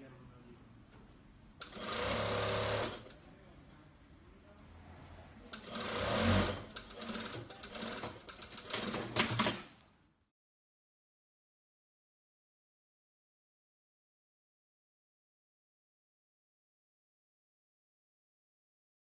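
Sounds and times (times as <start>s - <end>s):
sewing machine stitching: 1.6s - 3.1s, 5.5s - 9.7s.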